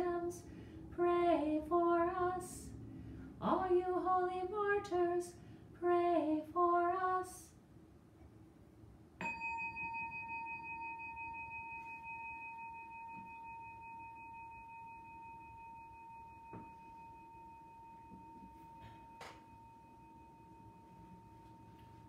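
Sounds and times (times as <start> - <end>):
struck bell ringing: 9.2 - 21.5.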